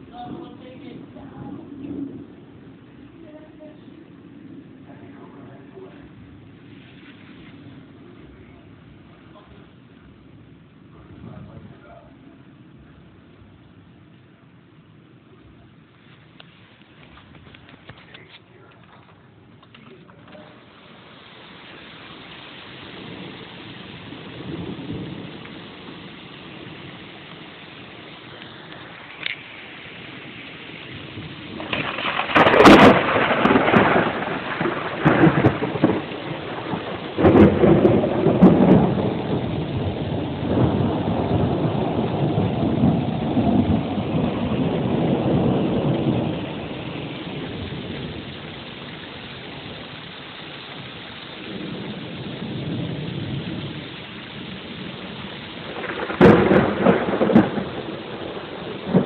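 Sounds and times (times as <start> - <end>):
thunder cracks and rumbles: 0.0 - 6.7, 22.1 - 59.0
steady rain: 0.0 - 59.0.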